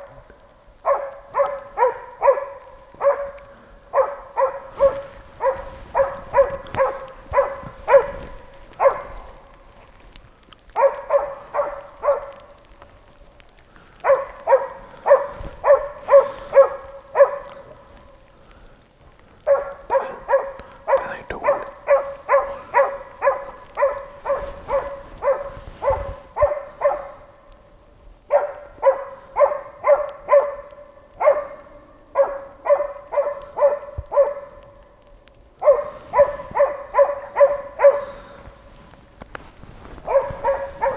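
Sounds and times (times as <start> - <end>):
dog barking quickly: 0.8 - 9.5, 10.7 - 12.7, 14.0 - 17.8, 19.4 - 27.3, 28.3 - 34.7, 35.6 - 38.4, 40.0 - 40.9.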